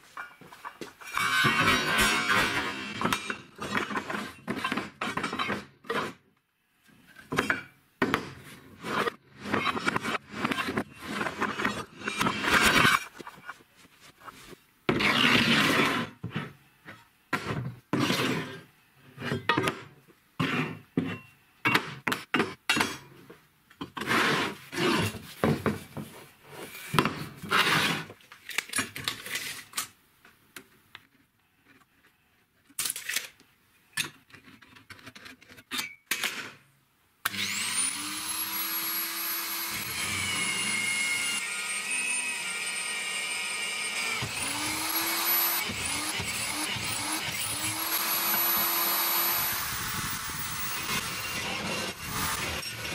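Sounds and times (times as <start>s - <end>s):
steel bars scraping and clanking: 0.2s - 5.6s
drill press whining: 37.3s - 52.9s.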